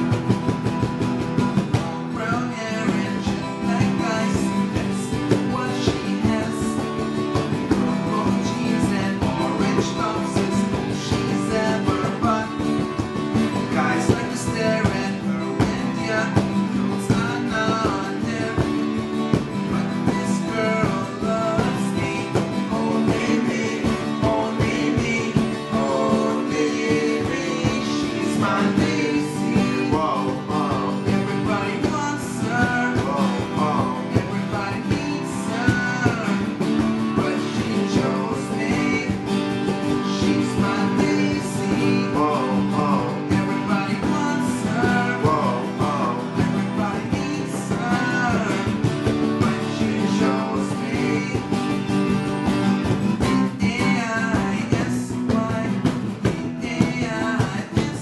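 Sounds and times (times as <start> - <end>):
acoustic guitars strummed: 0.0 - 58.0
young men singing: 1.5 - 51.9, 53.2 - 58.0.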